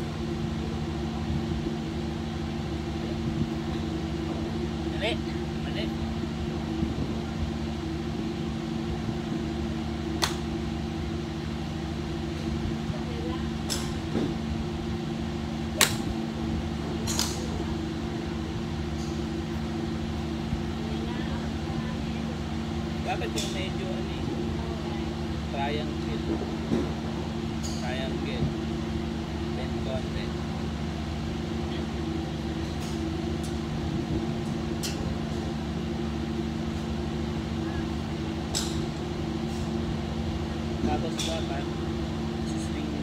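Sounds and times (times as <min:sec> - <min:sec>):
steady mechanical hum: 0:00.0 - 0:43.0
golf clubs striking balls: 0:10.2 - 0:10.6, 0:13.6 - 0:14.4, 0:15.7 - 0:17.7, 0:34.5 - 0:35.5, 0:38.4 - 0:39.8, 0:40.8 - 0:41.8.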